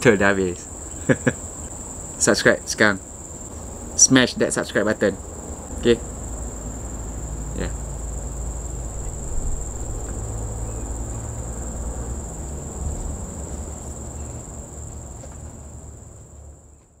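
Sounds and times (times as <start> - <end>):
insects chirring: 0.0 - 17.0
low rumble: 6.8 - 13.4.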